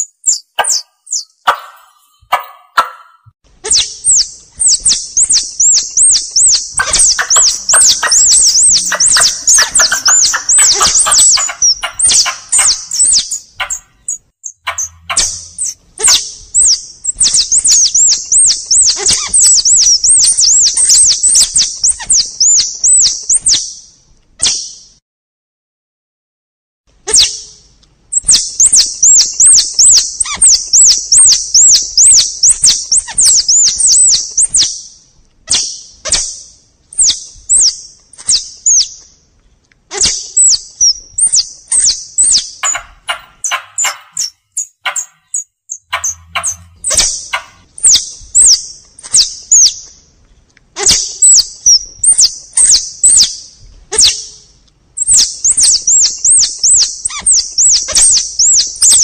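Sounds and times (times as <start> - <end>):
squirrel chirping: 0.0 - 23.9, 27.1 - 39.1, 39.9 - 50.0, 50.8 - 54.4, 55.0 - 59.0
sharp clicks: 42.6 - 48.1.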